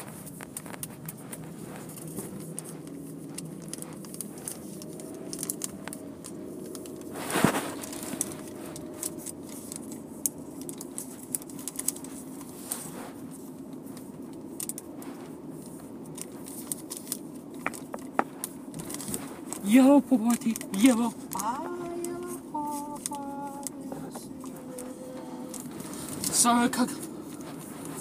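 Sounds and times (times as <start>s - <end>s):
crackling and rubbing clicks: 0.0s - 28.0s
steady low hum: 0.0s - 28.0s
rustling thump: 7.1s - 8.8s.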